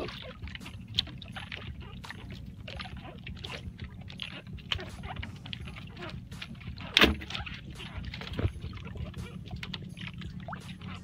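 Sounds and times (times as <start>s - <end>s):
fish clicking and knocking on line: 0.0s - 11.0s
water and wind rushing: 0.0s - 11.0s.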